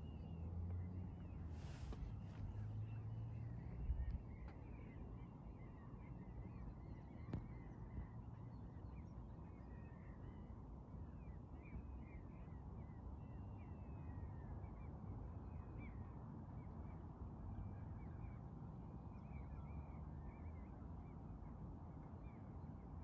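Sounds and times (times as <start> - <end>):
low steady rumble: 0.0 - 5.6.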